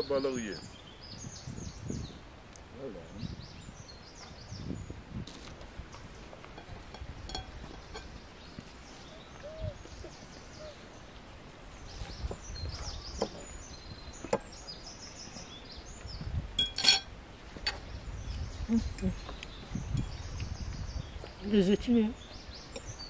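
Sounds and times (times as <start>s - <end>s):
birds chirping: 0.0s - 23.0s
forks clinking on plates: 16.6s - 17.1s.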